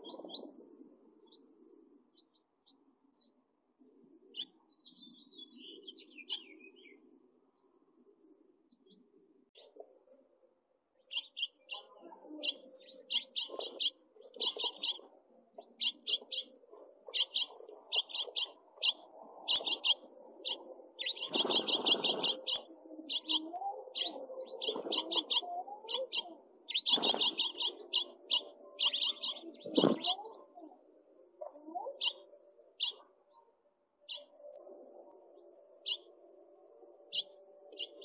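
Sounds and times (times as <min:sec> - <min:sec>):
baby birds chirping: 0:11.1 - 0:30.7, 0:31.5 - 0:33.0, 0:37.1 - 0:38.0
wings fluttering and rustling: 0:19.5 - 0:22.6, 0:24.1 - 0:28.4, 0:29.6 - 0:30.3.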